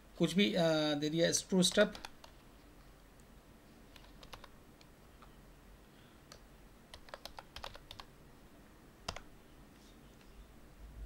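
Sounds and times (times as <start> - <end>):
faint keyboard keystrokes: 3.9 - 5.4, 6.3 - 8.1.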